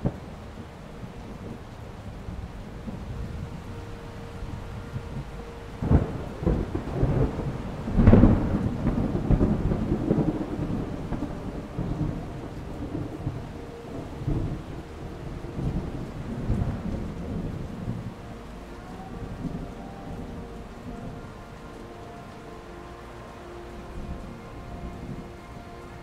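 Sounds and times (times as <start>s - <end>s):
thunder: 0.0s - 1.6s, 2.2s - 22.4s
steady rain: 0.0s - 26.0s.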